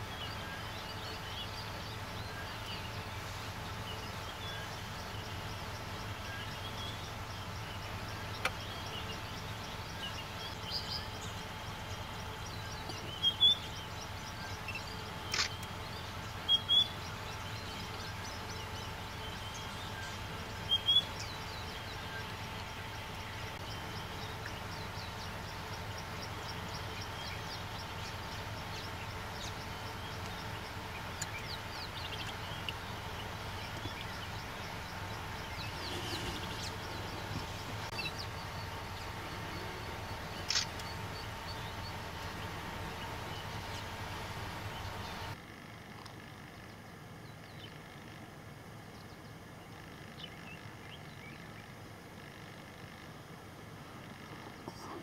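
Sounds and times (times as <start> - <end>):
bird chirps: 0.0 - 45.4
insect drone: 0.0 - 55.0
sharp click: 15.3 - 15.7, 40.5 - 40.9.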